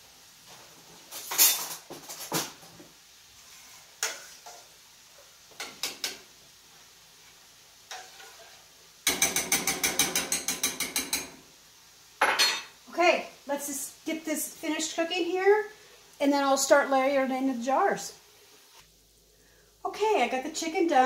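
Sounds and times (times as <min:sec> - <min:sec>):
metal kitchenware clattering: 0:01.1 - 0:02.6, 0:07.9 - 0:11.4, 0:12.2 - 0:12.8.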